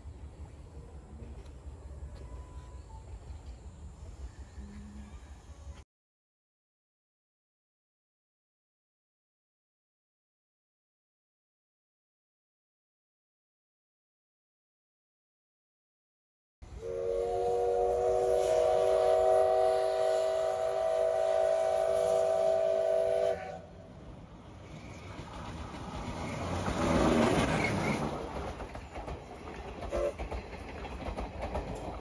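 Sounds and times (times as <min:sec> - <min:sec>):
train rumble passing: 0:00.0 - 0:05.8, 0:16.6 - 0:32.0
steam locomotive whistle: 0:16.7 - 0:23.8, 0:29.9 - 0:30.2
coaches clattering over rail joints: 0:24.8 - 0:32.0.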